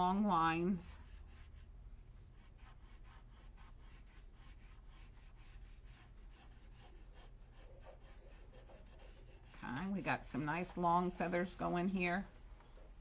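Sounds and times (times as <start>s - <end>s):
felt-tip pen scratching paper: 2.4s - 12.0s.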